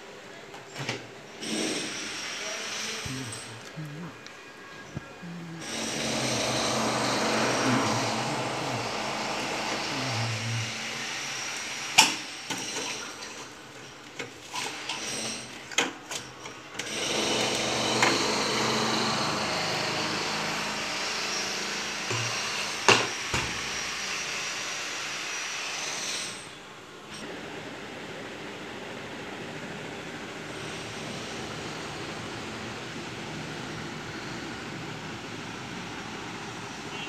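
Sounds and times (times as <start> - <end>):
steady whirring noise: 1.4 - 12.7.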